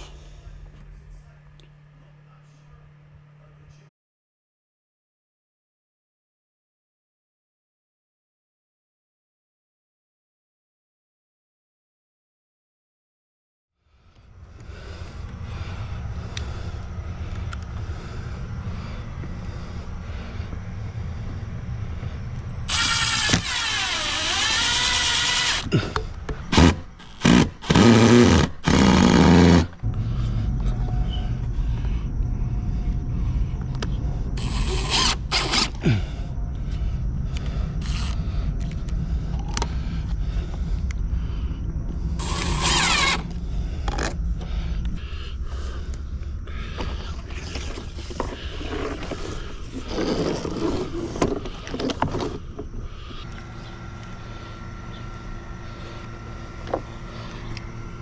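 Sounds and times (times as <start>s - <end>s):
low rumble: 14.0s - 23.7s, 29.7s - 58.0s
cordless drill driving screws: 22.5s - 25.7s, 26.5s - 29.8s, 34.4s - 35.8s, 37.8s - 38.2s, 42.2s - 43.2s.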